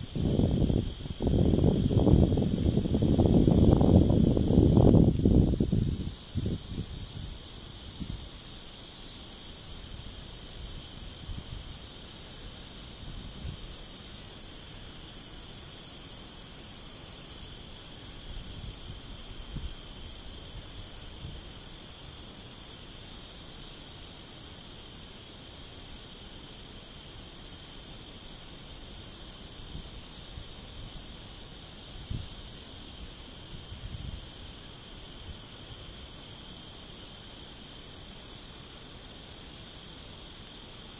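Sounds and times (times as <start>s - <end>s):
insects trilling: 0.0s - 40.9s.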